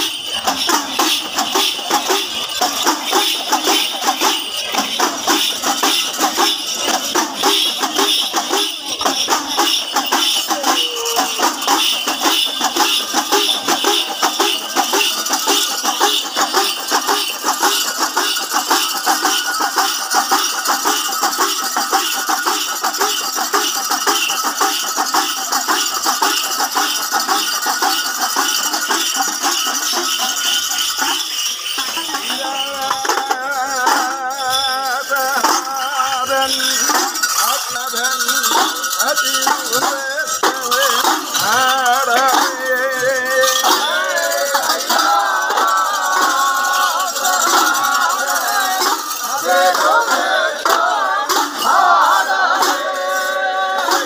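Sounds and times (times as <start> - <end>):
brass hand cymbals clashing: 0.0 - 54.0.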